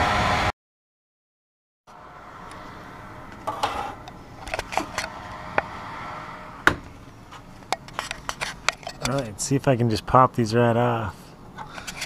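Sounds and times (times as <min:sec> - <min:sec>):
steady hum: 0:01.9 - 0:09.6.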